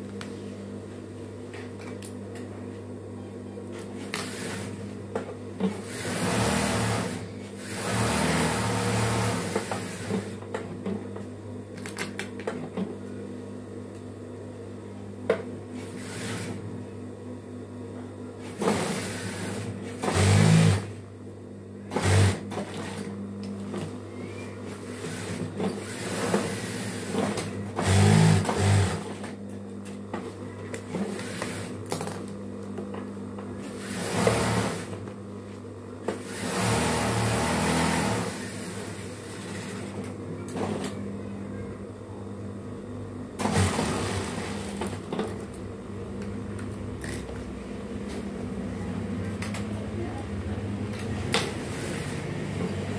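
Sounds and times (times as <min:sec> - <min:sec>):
sewing machine stitching: 0:05.7 - 0:10.4, 0:18.6 - 0:20.9, 0:21.9 - 0:23.1, 0:24.9 - 0:29.2, 0:33.7 - 0:35.0, 0:36.2 - 0:40.0, 0:43.4 - 0:45.0.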